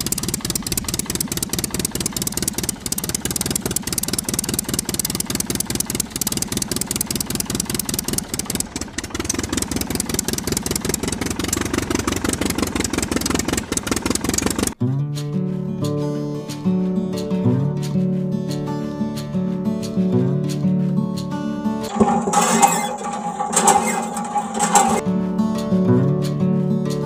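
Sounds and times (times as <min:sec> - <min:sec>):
toy engine chugging: 0:00.0 - 0:14.8, 0:21.9 - 0:25.0.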